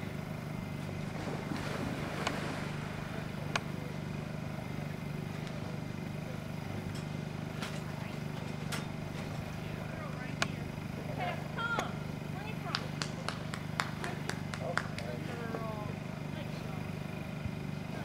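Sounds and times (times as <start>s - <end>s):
dog swimming: 0.0s - 4.6s
steady low hum: 0.0s - 18.0s
dog splashing into water: 1.1s - 3.2s.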